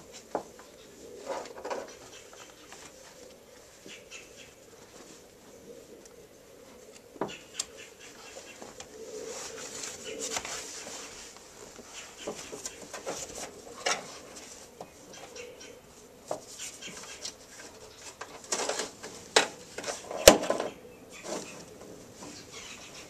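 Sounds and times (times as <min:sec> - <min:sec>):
fabric and plastic rustling: 0:08.2 - 0:14.8, 0:16.4 - 0:22.4.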